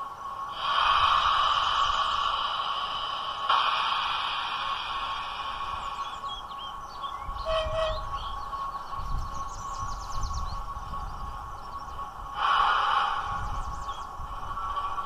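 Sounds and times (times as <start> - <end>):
diesel locomotive idling hum: 0.0 - 15.0
short hiss: 0.5 - 6.2.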